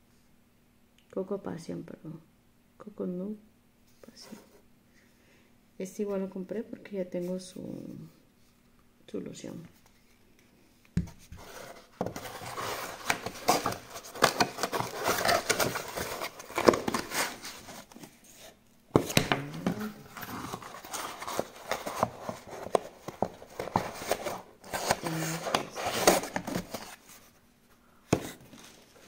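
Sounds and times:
cardboard box being handled: 0:11.0 - 0:27.4.

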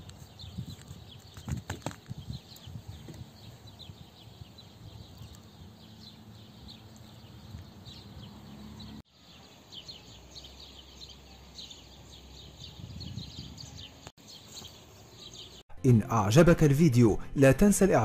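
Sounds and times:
small birds chirping: 0:00.0 - 0:15.6.

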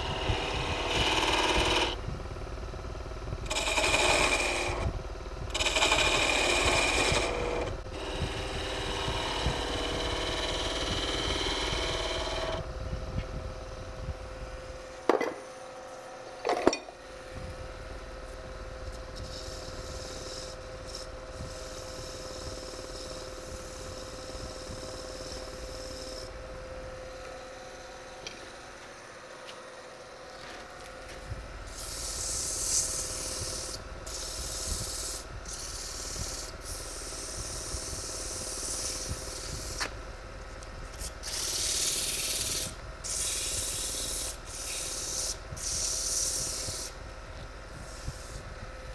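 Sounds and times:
wood lathe humming: 0:00.0 - 0:02.0, 0:03.4 - 0:12.7
sandpaper rubbing on spinning wood: 0:03.5 - 0:04.9, 0:05.5 - 0:12.6, 0:18.9 - 0:26.4, 0:31.7 - 0:40.0, 0:40.9 - 0:47.0.

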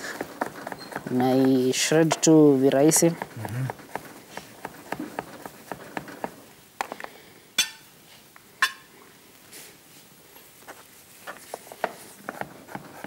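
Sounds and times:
knife chopping on cutting board: 0:03.1 - 0:06.4.

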